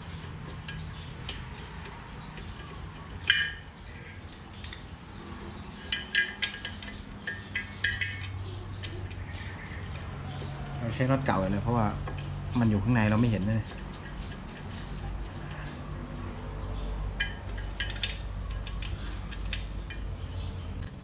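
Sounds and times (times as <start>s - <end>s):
wrench clicking on metal: 0.0s - 4.9s, 5.8s - 10.4s, 17.2s - 20.1s.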